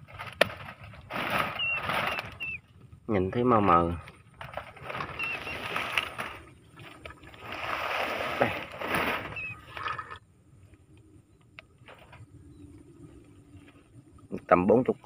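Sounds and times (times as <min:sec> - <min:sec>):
plastic basket rustling and clattering: 0:00.0 - 0:02.6, 0:03.8 - 0:09.9.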